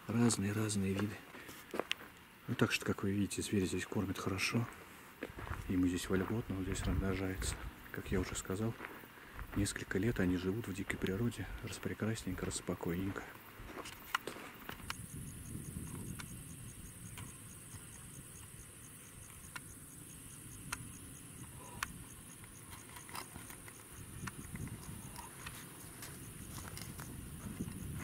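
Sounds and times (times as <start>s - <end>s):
insects trilling: 0.0s - 28.0s
faint clicks: 20.6s - 27.1s.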